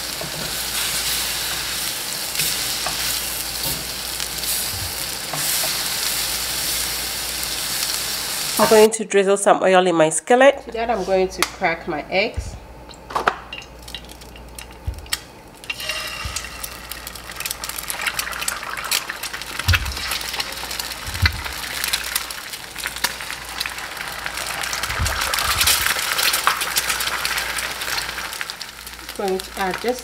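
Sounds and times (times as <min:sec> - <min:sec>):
eggs sizzling and crackling: 0:00.0 - 0:08.9, 0:10.7 - 0:30.0
eggs cracking: 0:12.8 - 0:28.4.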